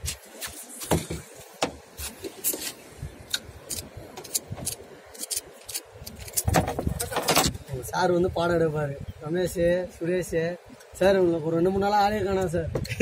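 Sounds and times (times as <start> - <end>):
knocks and clicks in boat: 6.4 - 7.6.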